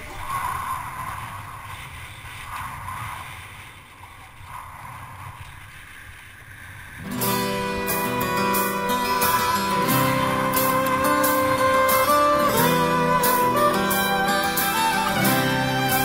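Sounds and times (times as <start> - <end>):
wind rushing over camera: 0.0 - 7.2
guitar music: 7.0 - 16.0.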